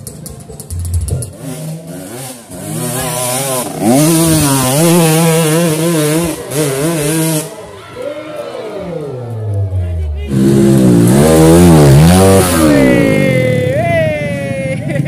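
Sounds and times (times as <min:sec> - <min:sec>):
dirt bike engine revving hard: 0:01.3 - 0:07.6, 0:08.6 - 0:13.7.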